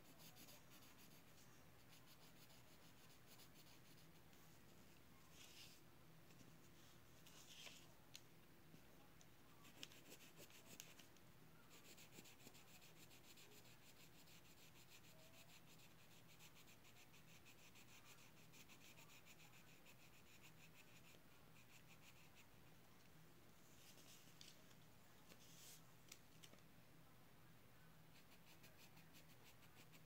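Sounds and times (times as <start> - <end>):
pen scratching on paper: 0.0 - 4.2.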